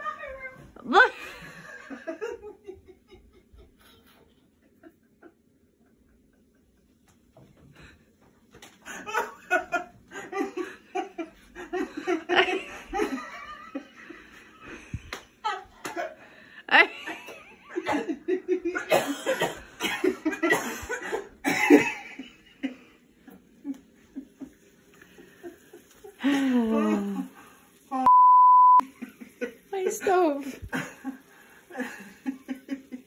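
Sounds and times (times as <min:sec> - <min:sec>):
people laughing: 0:00.0 - 0:07.2, 0:08.7 - 0:27.4, 0:28.8 - 0:33.0
people coughing: 0:17.8 - 0:22.2.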